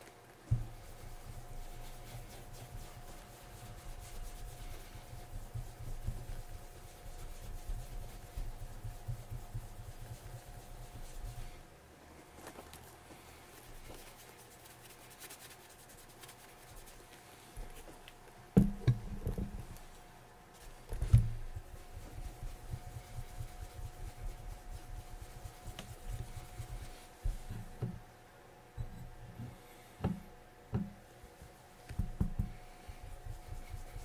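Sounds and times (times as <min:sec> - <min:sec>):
cloth rubbing leather: 0:00.1 - 0:11.6, 0:20.6 - 0:27.8, 0:33.0 - 0:34.0
sharp knocks on boot: 0:18.6 - 0:19.5.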